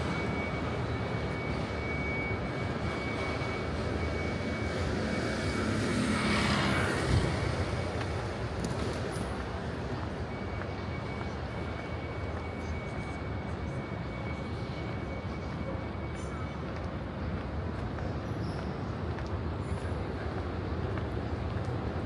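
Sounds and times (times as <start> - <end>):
airplane passing overhead: 0.0 - 8.7
outdoor background hum: 0.0 - 22.0.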